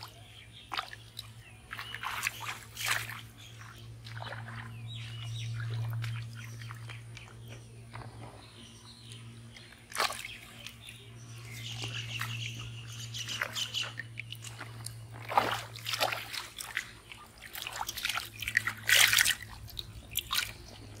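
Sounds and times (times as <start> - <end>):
hands splashing in water: 0.0 - 7.3, 9.9 - 11.0, 13.3 - 20.7
low hum: 0.1 - 21.0
fish flapping in water: 0.7 - 4.8, 11.7 - 21.0.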